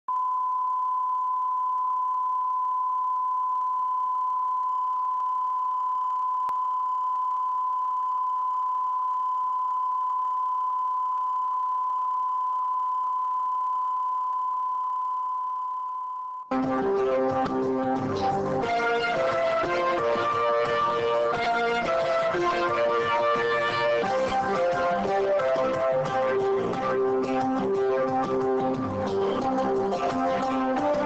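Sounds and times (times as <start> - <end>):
guitar music: 16.5 - 31.0
steady line-up tone: 16.5 - 31.0.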